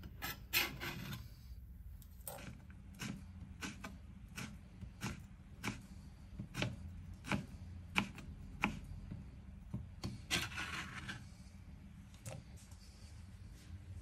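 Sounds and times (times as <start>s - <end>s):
knife scraping across board: 0.0s - 1.4s, 10.3s - 11.3s
knife chopping on cutting board: 3.0s - 5.8s, 6.4s - 8.9s.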